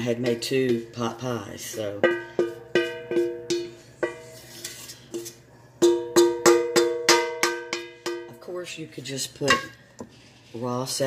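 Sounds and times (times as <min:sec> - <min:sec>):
wooden spoon knocking a skillet: 0:00.0 - 0:04.4, 0:05.8 - 0:08.6.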